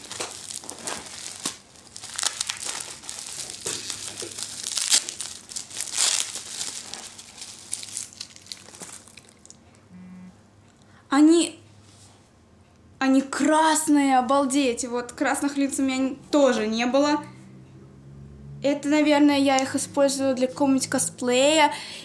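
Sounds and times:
plastic packaging crinkling: 0.0 - 9.7.

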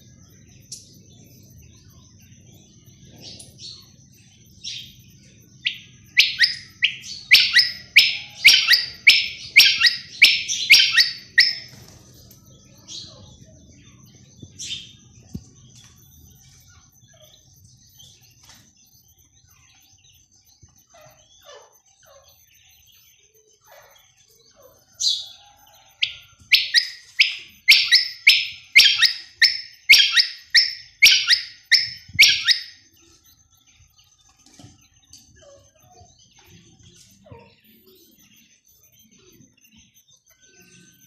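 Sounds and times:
faint chirps: 0.0 - 41.0
quail calling: 5.7 - 11.7, 26.0 - 32.8.

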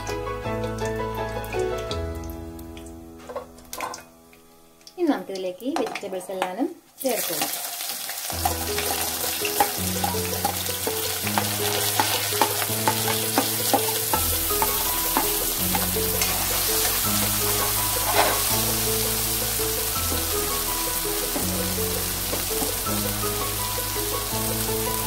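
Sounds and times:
background music with held chords: 0.0 - 5.0, 8.4 - 25.0
vegetables sizzling in hot oil: 6.4 - 25.0
steel spoon clicking on pan: 11.4 - 16.4.

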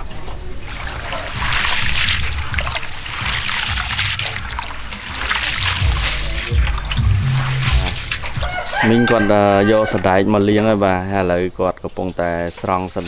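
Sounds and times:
water sloshing in metal basin: 0.2 - 10.2, 11.6 - 13.0.

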